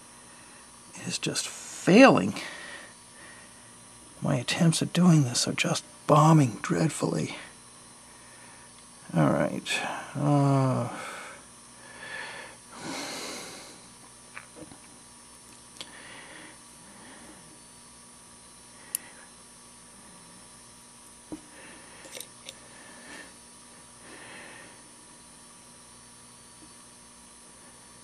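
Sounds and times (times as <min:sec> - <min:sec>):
soft breathing: 0:15.8 - 0:17.6.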